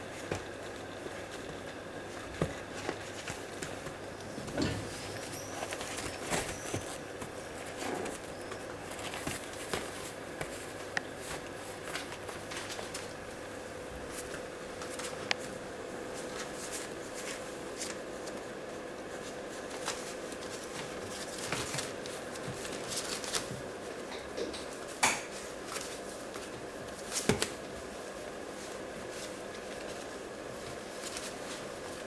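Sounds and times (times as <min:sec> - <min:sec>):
faint steady hum: 0:00.0 - 0:32.0
puppy claws scratching paper: 0:05.0 - 0:13.1, 0:19.1 - 0:23.6.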